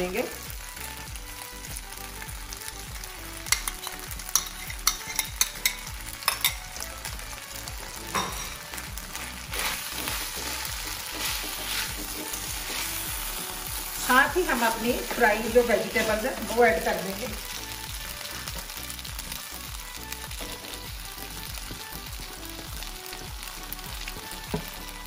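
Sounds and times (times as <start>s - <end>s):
noodles sizzling in a wok: 0.0s - 25.0s
spatula stirring: 3.4s - 6.6s, 8.1s - 18.8s.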